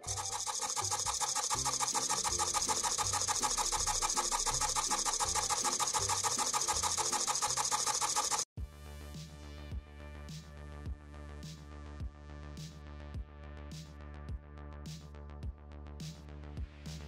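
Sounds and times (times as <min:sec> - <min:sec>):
servo gears buzzing: 0:00.0 - 0:08.5.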